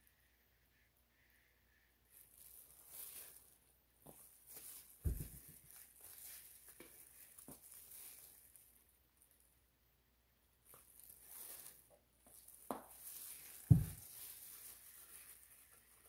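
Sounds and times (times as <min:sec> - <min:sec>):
plastic glove crinkling: 0:02.1 - 0:09.5, 0:10.6 - 0:16.0
bottle thud on table: 0:13.7 - 0:14.0.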